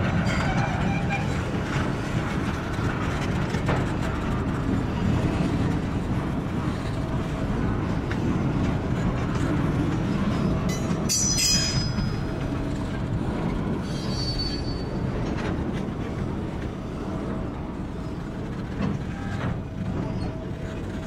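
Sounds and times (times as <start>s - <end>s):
rumble of wheels on rail: 0.0s - 21.0s
high wheel squeal: 13.8s - 15.0s.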